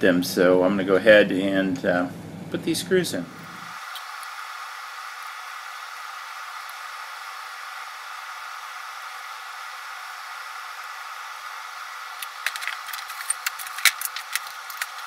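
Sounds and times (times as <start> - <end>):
steady hiss: 0.0 - 15.0
screws and hand tool clicking: 12.2 - 15.0.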